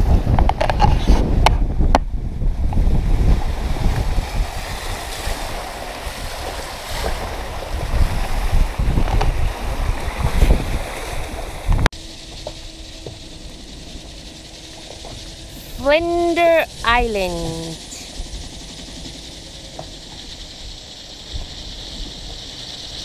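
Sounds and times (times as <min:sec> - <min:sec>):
wind buffeting microphone: 0:00.0 - 0:23.0
choppy water rushing: 0:01.6 - 0:23.0
faint steady hum: 0:10.8 - 0:23.0.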